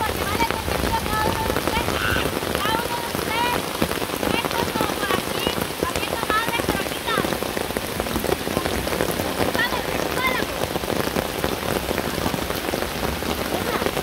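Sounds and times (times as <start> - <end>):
rain pattering: 0.0 - 14.0.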